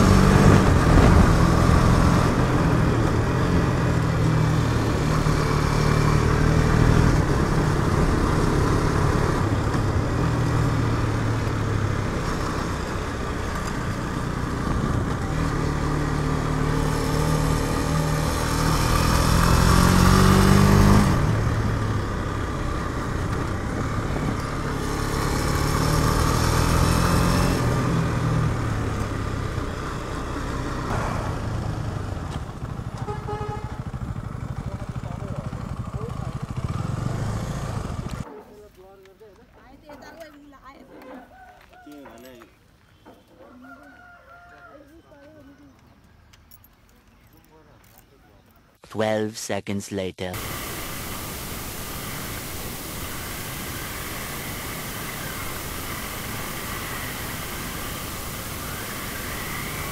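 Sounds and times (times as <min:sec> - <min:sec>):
motorcycle engine revving: 0:00.0 - 0:38.3, 0:50.4 - 0:59.9.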